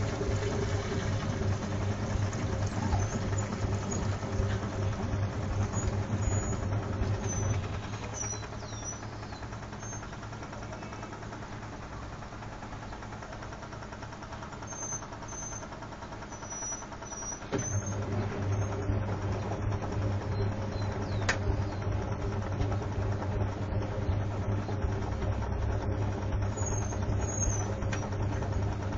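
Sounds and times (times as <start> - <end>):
suds sloshing in washing machine drum: 0.0 - 12.2
washing machine motor hum: 0.0 - 28.9.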